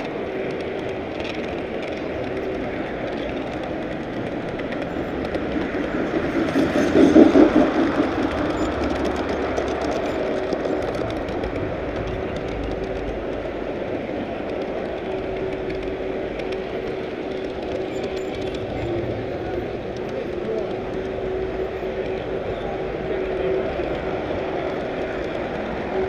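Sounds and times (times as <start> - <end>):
model train wheels rumbling on rail: 0.0 - 26.0.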